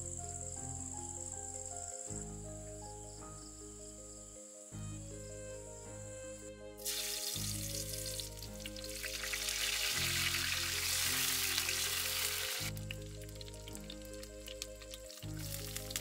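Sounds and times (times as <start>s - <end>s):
garlic sizzling in hot oil: 6.8s - 16.0s.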